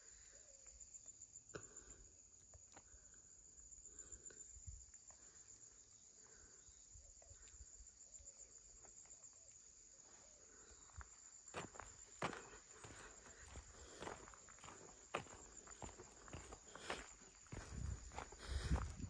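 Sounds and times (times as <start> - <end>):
insects trilling: 0.0 - 19.0
soft footsteps on ground: 10.0 - 19.0.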